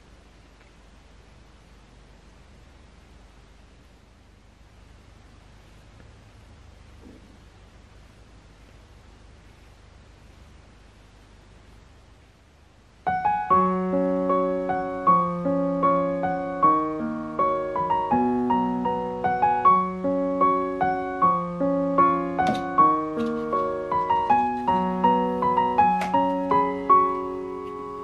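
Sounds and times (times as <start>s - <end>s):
gentle piano melody: 13.0s - 28.0s.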